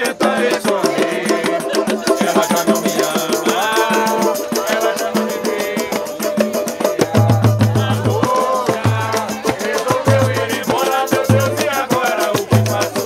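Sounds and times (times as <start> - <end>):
people singing: 0.0 - 13.0
samba band playing: 0.0 - 13.0.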